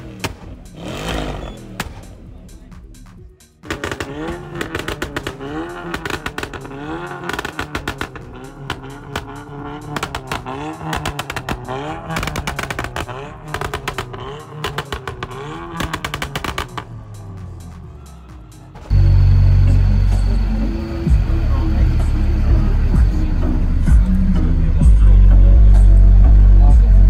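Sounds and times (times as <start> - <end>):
car engine revving: 0.0 - 27.0
car exhaust pops and bangs: 0.1 - 0.8, 1.7 - 2.2, 3.6 - 17.0.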